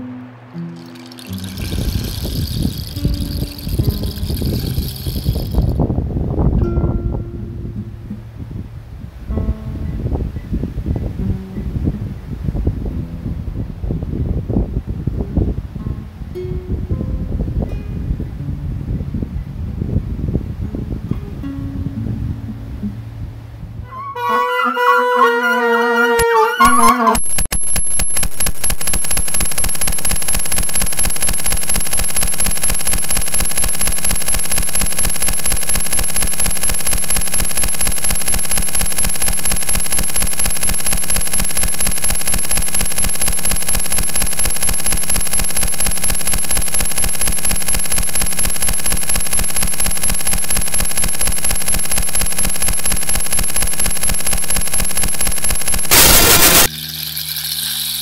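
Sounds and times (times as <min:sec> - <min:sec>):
steady high whine: 0:00.0 - 0:05.9, 0:26.6 - 0:58.0
metallic clicks and rattling: 0:00.8 - 0:05.8, 0:27.3 - 0:58.0
woodwind-like passage: 0:23.8 - 0:27.2.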